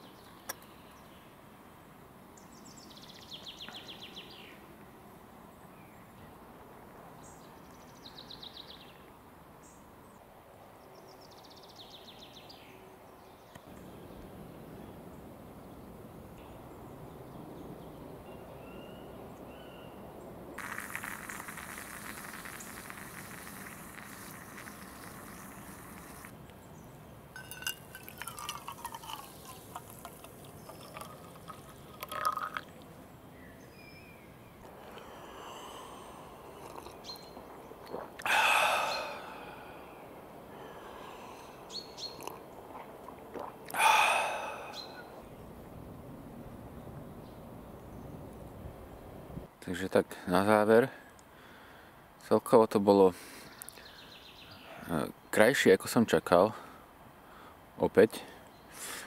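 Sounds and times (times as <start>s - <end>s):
coffee pouring into mug: 20.6s - 26.3s, 27.4s - 32.8s, 36.6s - 37.0s
moka pot hissing and sputtering: 20.6s - 26.3s, 27.4s - 32.6s.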